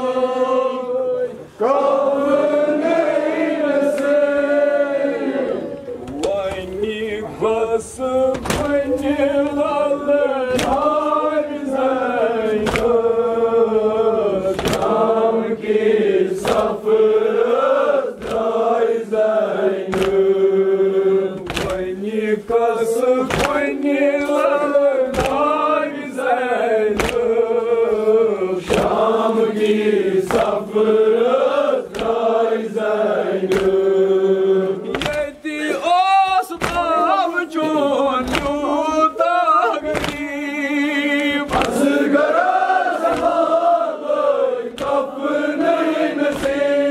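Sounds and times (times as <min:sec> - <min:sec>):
men chanting in unison: 0:00.0 - 0:46.9
hands beating on chests: 0:08.3 - 0:08.8, 0:10.5 - 0:10.9, 0:21.4 - 0:21.9, 0:23.3 - 0:23.8, 0:34.9 - 0:35.4, 0:36.5 - 0:38.8, 0:39.7 - 0:40.4, 0:41.5 - 0:41.9.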